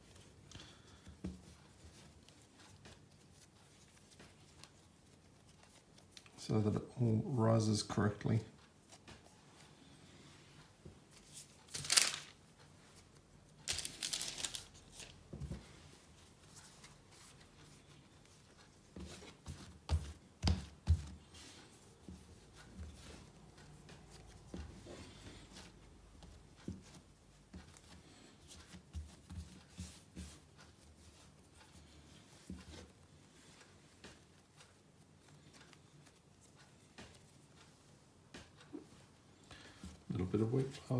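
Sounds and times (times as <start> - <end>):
baking paper rustling: 11.1 - 34.7.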